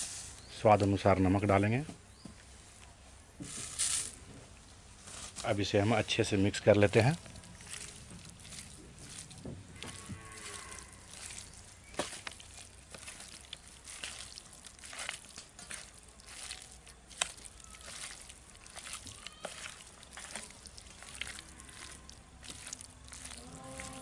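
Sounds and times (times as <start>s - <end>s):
wet squelching of raw meat: 5.3s - 24.0s.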